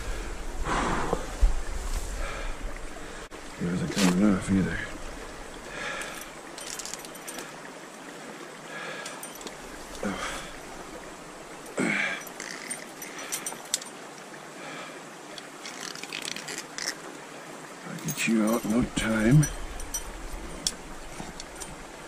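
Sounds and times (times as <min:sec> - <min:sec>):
stream rushing: 0:00.0 - 0:22.0
light clicks and rustles: 0:03.8 - 0:07.6, 0:09.0 - 0:10.8, 0:11.6 - 0:14.3, 0:15.3 - 0:17.1, 0:17.9 - 0:22.0.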